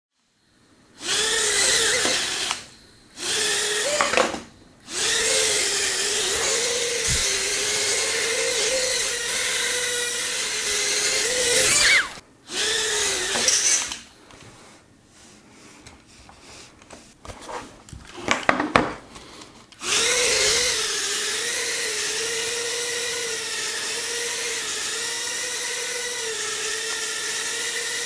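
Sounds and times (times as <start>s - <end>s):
quadcopter motors whining: 1.0s - 14.1s, 19.8s - 28.0s.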